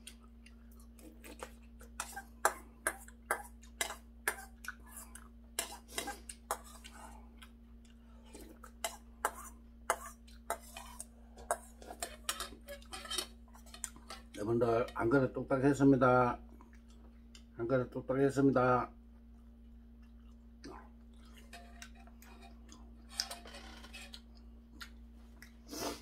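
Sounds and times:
spoon scraping metal bowl: 8.8s - 15.0s, 21.4s - 24.2s.

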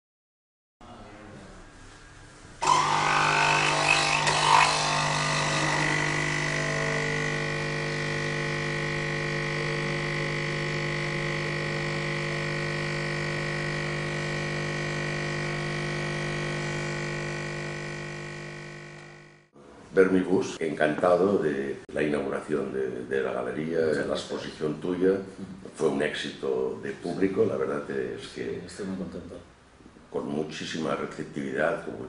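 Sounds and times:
espresso machine pump rattling: 2.6s - 19.3s.

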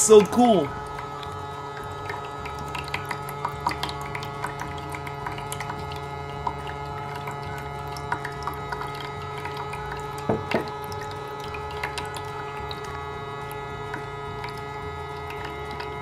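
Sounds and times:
small water pump humming: 0.0s - 16.0s
knocks: 10.3s - 10.7s.

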